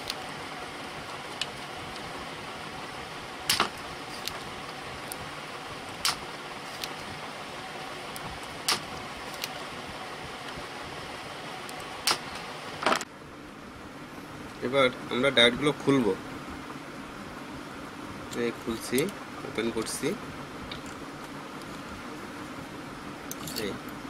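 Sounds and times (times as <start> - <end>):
steady hiss: 0.0 - 24.0
loud sharp clicks: 3.5 - 4.4, 6.0 - 7.0, 8.4 - 9.6, 11.7 - 12.5.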